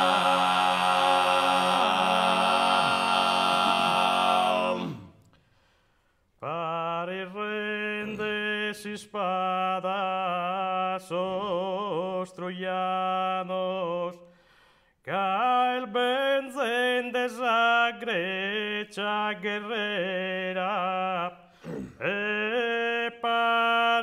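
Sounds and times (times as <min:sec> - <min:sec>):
male voices singing in harmony: 0:00.0 - 0:05.2, 0:06.4 - 0:14.2.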